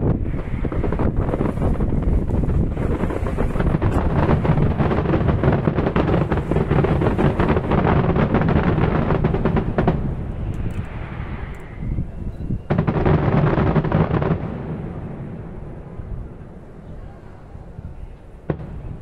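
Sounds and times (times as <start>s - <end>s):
firework hiss: 0.0s - 14.4s
loud firework bang: 0.0s - 16.1s
fireworks crackling: 0.0s - 17.1s, 17.8s - 19.0s.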